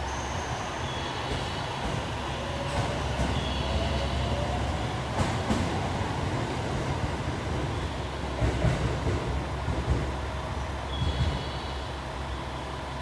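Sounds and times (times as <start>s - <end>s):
train wheels rumbling on rails: 0.0s - 13.0s
train wheel clacks: 8.3s - 10.3s.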